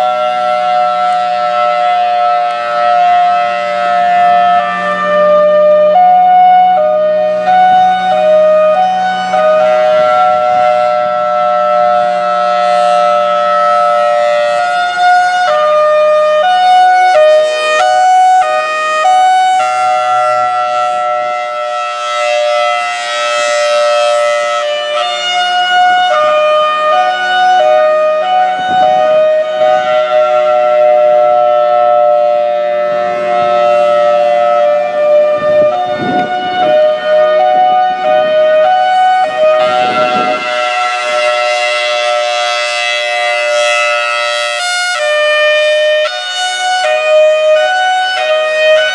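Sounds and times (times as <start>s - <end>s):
warning siren two-tone chord: 0.0s - 48.9s.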